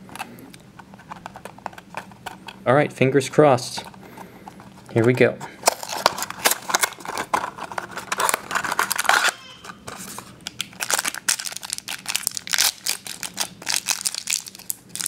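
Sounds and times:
foil pouch crinkling: 5.6s - 15.0s.

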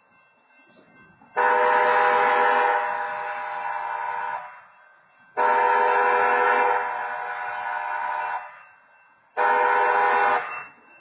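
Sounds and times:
train horn blasts: 1.4s - 4.6s, 5.4s - 8.5s, 9.4s - 10.7s.

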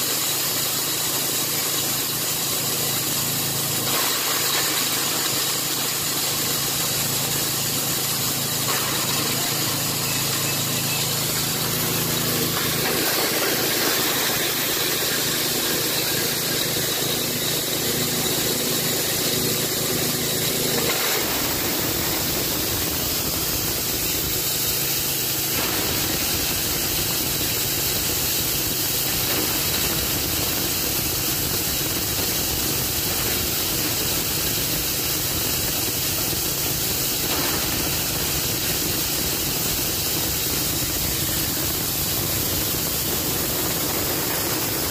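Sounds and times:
cutter rushing hiss: 0.0s - 44.9s
petrol engine running: 1.4s - 29.3s.

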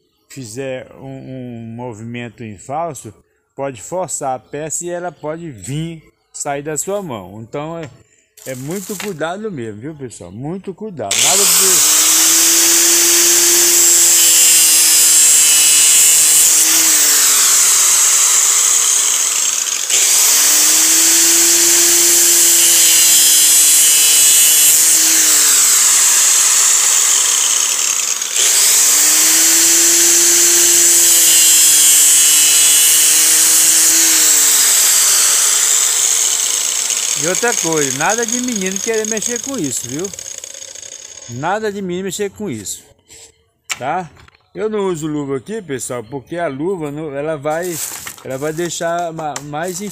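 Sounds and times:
angle grinder whining: 8.4s - 9.2s, 11.1s - 41.4s.

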